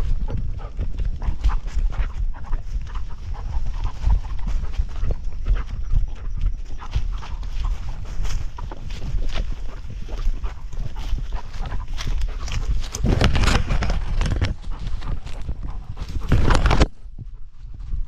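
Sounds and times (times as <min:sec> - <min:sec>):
vegetation scraping over camera: 0:06.7 - 0:17.0.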